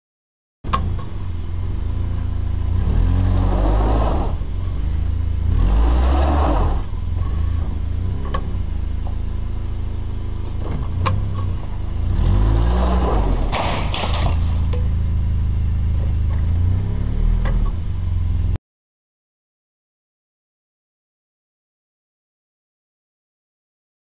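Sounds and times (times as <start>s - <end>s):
truck engine revving: 1.6s - 8.7s, 10.8s - 14.6s.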